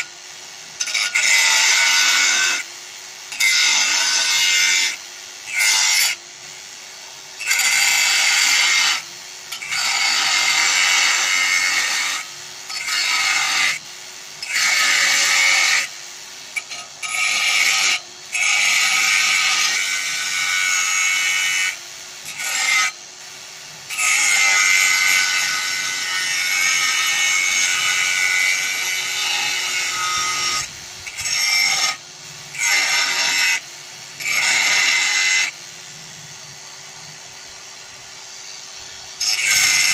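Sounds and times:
angle grinder cutting metal: 0:00.0 - 0:39.9
grinder motor whirring: 0:00.0 - 0:39.9.

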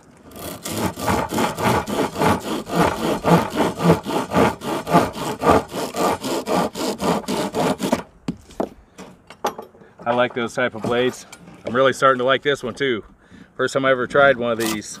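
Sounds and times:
hand saw cutting branch: 0:00.2 - 0:08.1.

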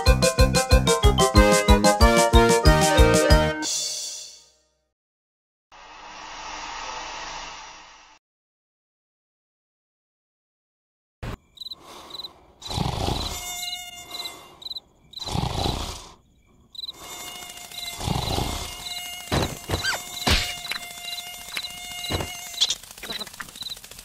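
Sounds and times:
cricket chirps: 0:11.2 - 0:24.0
mosquito whining buzz: 0:12.6 - 0:15.9, 0:16.8 - 0:23.2
sharp clicks: 0:20.2 - 0:24.0.

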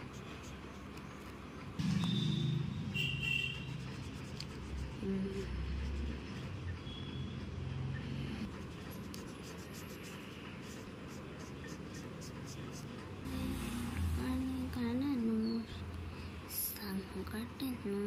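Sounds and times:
marker scratching on paper: 0:00.0 - 0:01.4, 0:03.4 - 0:07.0, 0:08.0 - 0:13.3.

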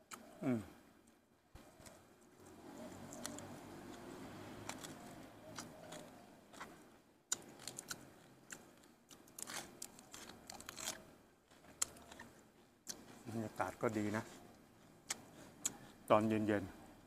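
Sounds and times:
person chewing food: 0:00.0 - 0:13.3, 0:14.4 - 0:16.1
lettuce crunching: 0:01.8 - 0:13.2.

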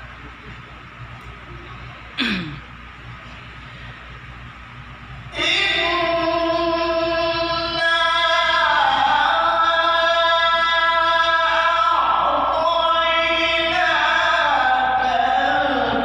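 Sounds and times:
man chanting into a microphone: 0:05.3 - 0:16.0.

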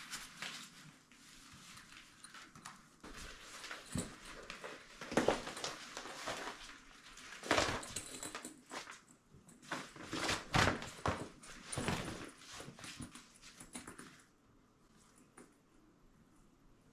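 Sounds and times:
tent canvas and plastic rustling: 0:00.0 - 0:09.0, 0:09.6 - 0:13.6.

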